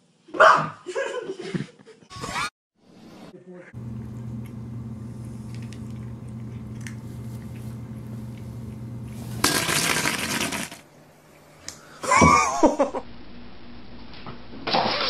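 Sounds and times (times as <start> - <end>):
steady low hum: 3.8 - 9.7.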